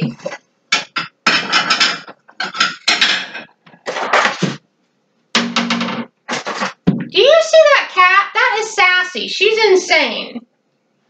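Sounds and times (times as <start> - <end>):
dishes clattering and clinking: 0.0 - 4.6.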